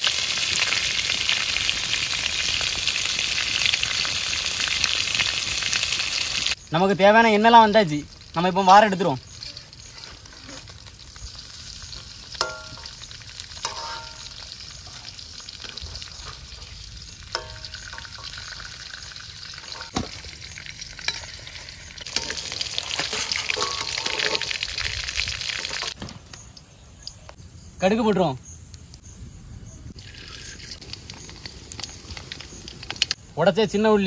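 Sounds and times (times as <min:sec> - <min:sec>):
pork fat sizzling in pan: 0:00.0 - 0:26.0, 0:30.0 - 0:33.2
metal ladle scraping pan: 0:12.4 - 0:18.7, 0:19.6 - 0:20.2, 0:21.0 - 0:24.7.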